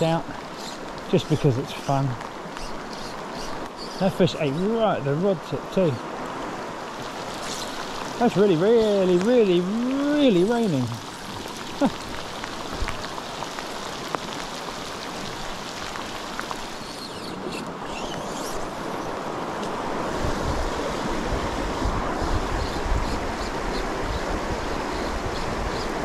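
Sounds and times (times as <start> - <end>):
heavy rain: 0.0 - 26.0
river water flowing: 0.0 - 26.0
wind buffeting microphone: 19.8 - 26.0.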